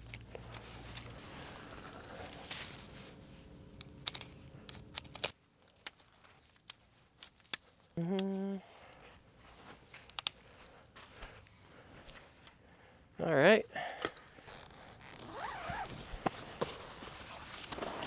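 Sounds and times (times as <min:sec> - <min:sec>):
clicks and crinkling handling noises: 0:00.0 - 0:12.6.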